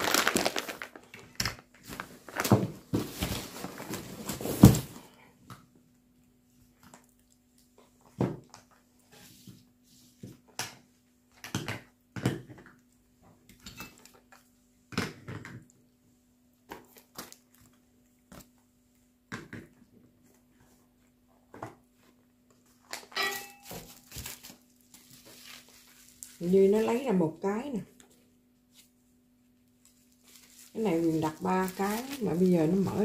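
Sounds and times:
plastic bags rustling: 0:00.0 - 0:05.2, 0:22.6 - 0:27.2, 0:29.8 - 0:33.0
metal items clacking on table: 0:23.1 - 0:23.9.

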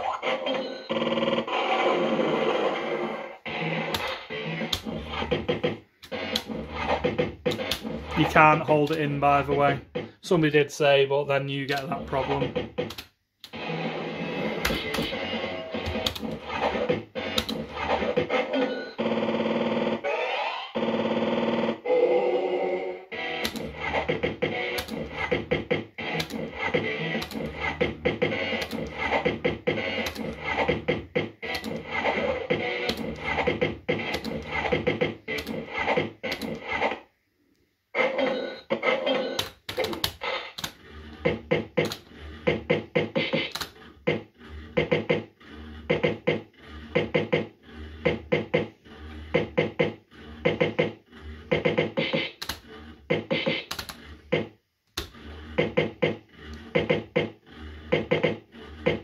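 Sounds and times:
fruit machine music and effects: 0:00.0 - 0:37.1, 0:38.0 - 0:59.0
sharp clicks: 0:03.9 - 0:10.1, 0:11.7 - 0:13.6, 0:14.6 - 0:17.7, 0:23.3 - 0:36.9, 0:39.4 - 0:44.2, 0:51.5 - 0:57.3.

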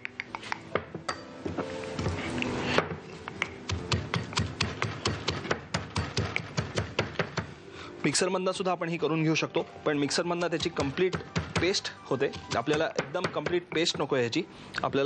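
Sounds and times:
pestle pounding in a mortar: 0:03.4 - 0:07.5, 0:10.5 - 0:14.1.

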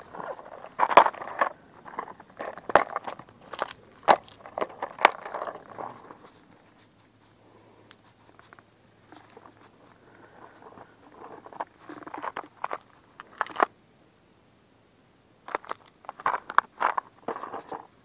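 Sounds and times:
plastic case clicks and rustles: 0:00.1 - 0:06.5, 0:15.5 - 0:17.9.

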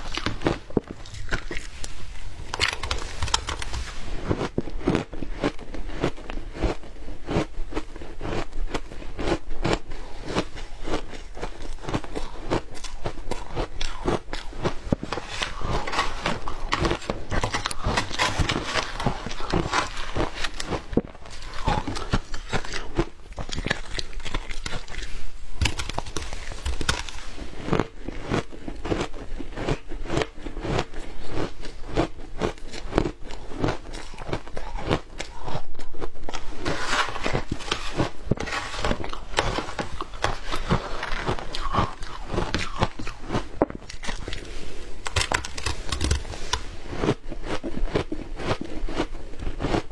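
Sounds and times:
ice crunched and chewed: 0:00.0 - 0:49.9
metal spoon scraping ice: 0:13.3 - 0:22.7, 0:36.5 - 0:43.2.

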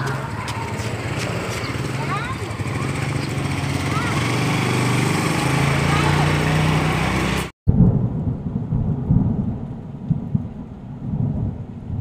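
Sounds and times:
scooter engine idling: 0:00.0 - 0:04.7
thunder rumbling and cracking: 0:07.7 - 0:12.0.

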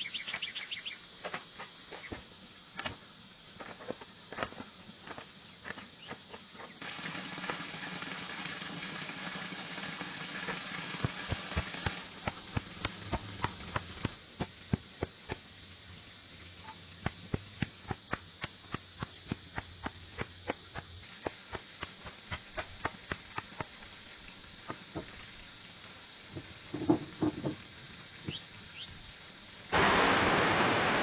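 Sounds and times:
steady hiss: 0:09.2 - 0:31.0.

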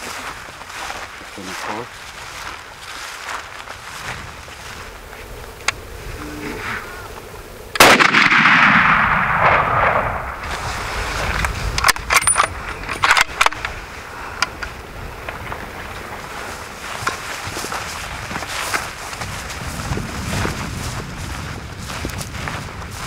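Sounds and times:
rifle shot with echo: 0:07.8 - 0:10.4.

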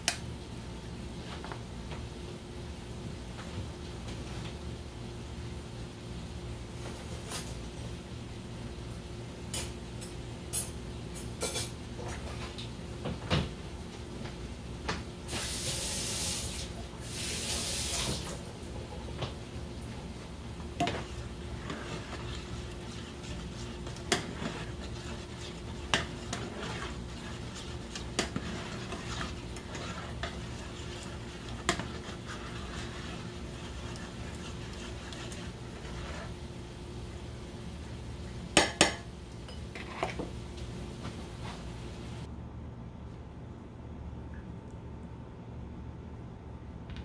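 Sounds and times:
faint steady hum: 0:00.0 - 0:47.0
plastic spoon scraping a pot: 0:20.8 - 0:36.4.

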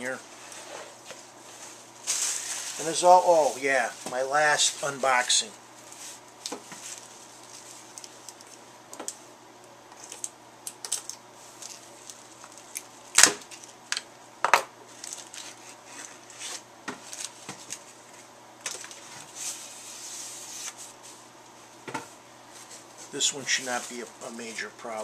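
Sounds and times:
cardboard and paper rustling scrape: 0:00.4 - 0:05.3, 0:18.8 - 0:21.2.

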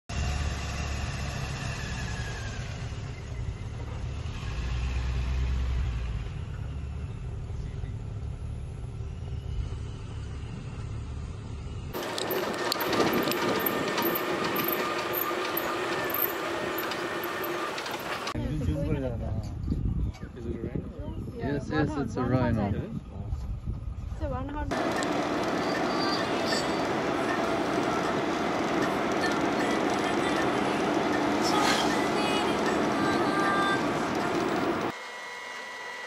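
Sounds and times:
jeep driving on dirt track: 0:00.1 - 0:18.4, 0:24.7 - 0:35.0
jeep engine rumbling: 0:00.1 - 0:18.4, 0:24.7 - 0:35.0
wind: 0:00.1 - 0:36.0.

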